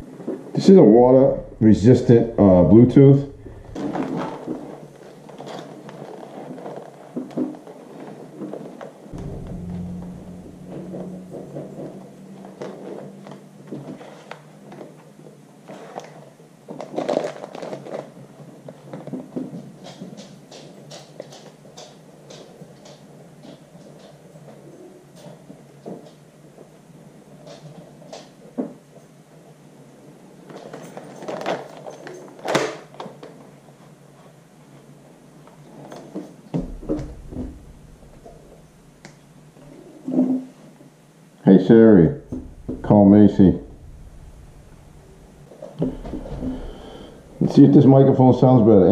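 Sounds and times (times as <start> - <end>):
brief low rumbles: 0.9 - 4.7, 9.1 - 14.1, 36.6 - 39.3, 42.0 - 48.4.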